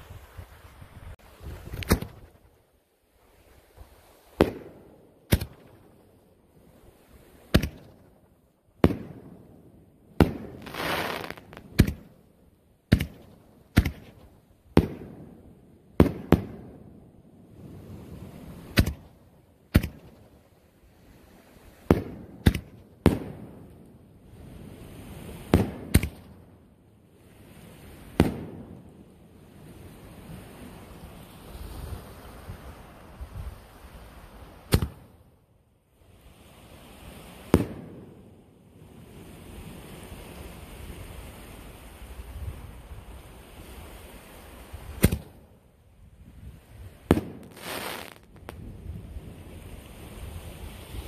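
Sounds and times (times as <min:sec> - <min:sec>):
firework hiss: 0:10.4 - 0:11.9, 0:47.1 - 0:48.6.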